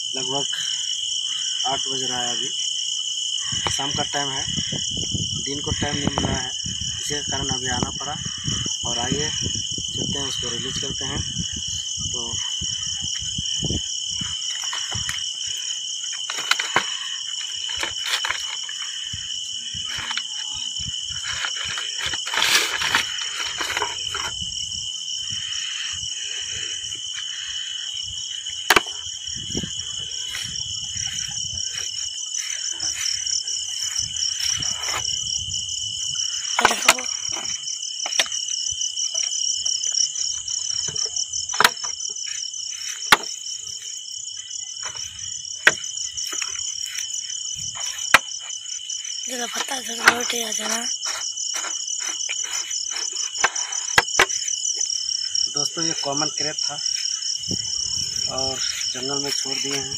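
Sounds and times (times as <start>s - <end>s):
crickets chirring: 0.0s - 59.9s
rustling: 16.2s - 19.1s, 19.8s - 24.4s
footsteps: 29.4s - 35.2s.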